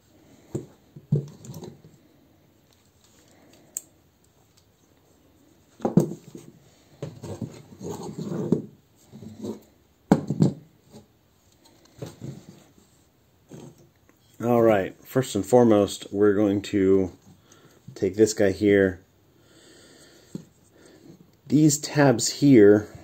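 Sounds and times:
plastic parts clacking and rubbing: 0:00.5 - 0:02.0, 0:05.8 - 0:10.6.

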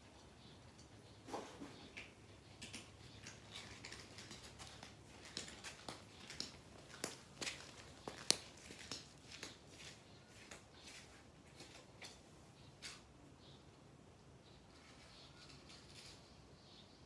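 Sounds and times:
cats eating from a food bowl: 0:00.0 - 0:12.2.

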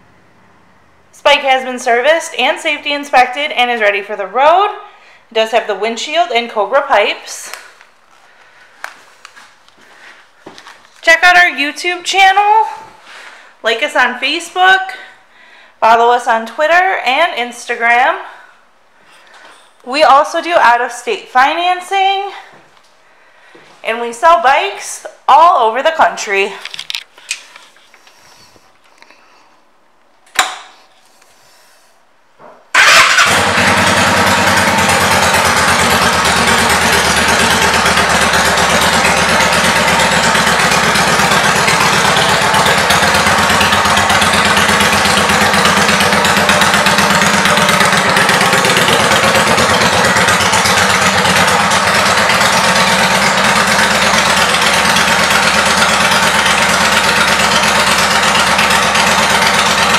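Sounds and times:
sharp click: 0:30.3 - 0:30.7
motorcycle engine starting and idling: 0:32.7 - 0:59.9.

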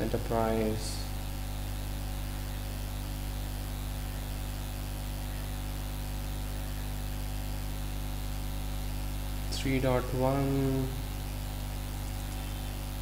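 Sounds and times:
electrical hum: 0:00.0 - 0:13.0
microphone hiss: 0:00.0 - 0:13.0.

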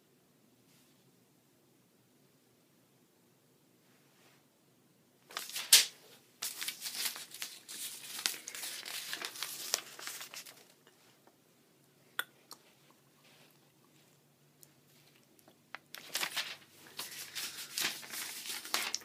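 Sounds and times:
paper crumpling: 0:05.3 - 0:10.8, 0:15.9 - 0:19.0.

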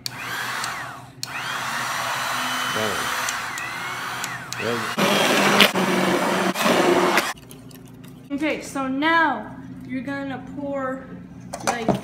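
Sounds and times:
electric mixer whining in batter: 0:00.0 - 0:07.4.

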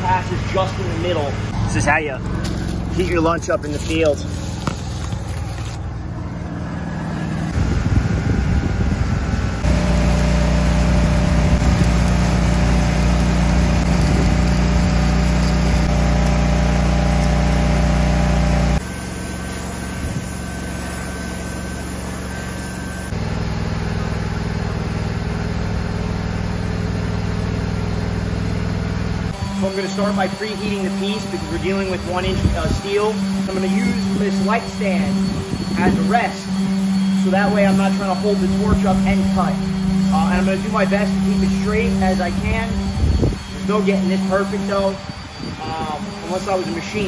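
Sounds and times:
welding machine engine running: 0:00.0 - 0:47.0
welding arc crackle: 0:01.7 - 0:05.9, 0:09.6 - 0:23.1, 0:29.3 - 0:45.0.

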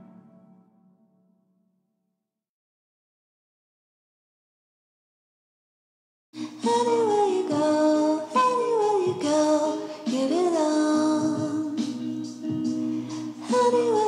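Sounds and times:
sustained chords: 0:00.0 - 0:01.2
person singing: 0:06.4 - 0:14.0.

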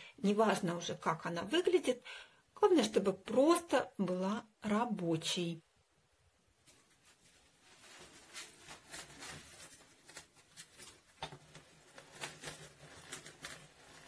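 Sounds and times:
leaves rustling: 0:06.6 - 0:14.0
clicks and crunches: 0:08.6 - 0:14.0.

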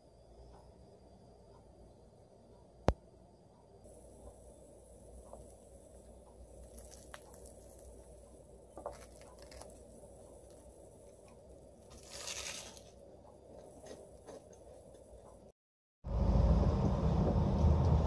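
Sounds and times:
low room hum: 0:00.0 - 0:15.5
light clicks and crackles: 0:05.2 - 0:08.1, 0:08.8 - 0:12.9
rustling crunch: 0:06.5 - 0:14.8.

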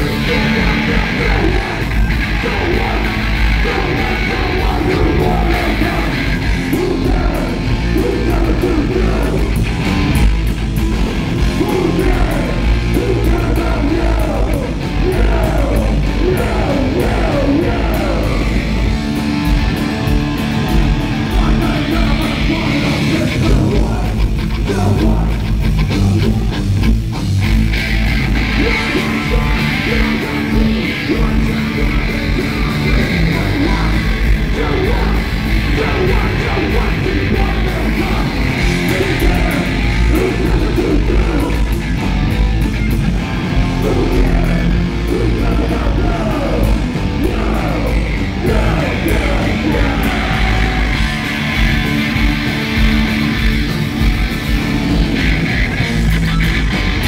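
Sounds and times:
person yelling vocals: 0:00.0 - 0:09.6, 0:11.5 - 0:18.7, 0:28.5 - 0:41.8, 0:43.7 - 0:51.7
bass guitar: 0:00.0 - 0:57.0
distorted electric guitars: 0:00.0 - 0:57.0
fast pounding drums: 0:00.0 - 0:57.0.

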